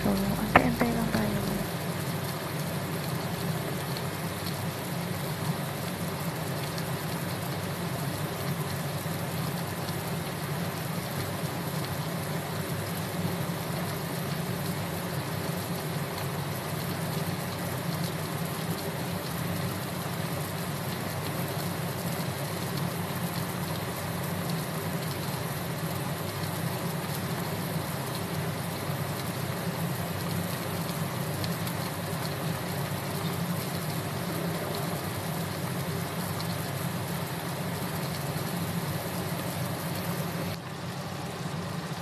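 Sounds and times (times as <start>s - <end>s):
pot boiling with bubbling sizzle: 0.0s - 42.0s.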